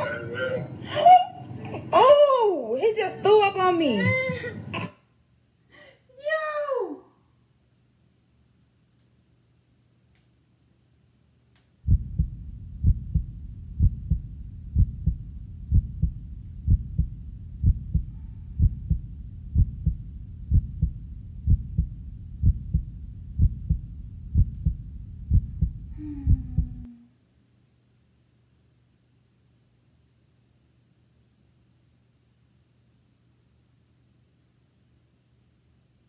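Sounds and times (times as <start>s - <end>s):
deep thumping pulse: 11.9s - 26.9s.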